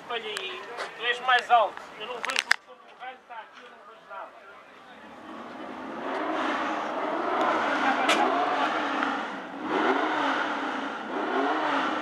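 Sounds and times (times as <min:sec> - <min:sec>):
racing car engine revving: 0:05.0 - 0:12.0.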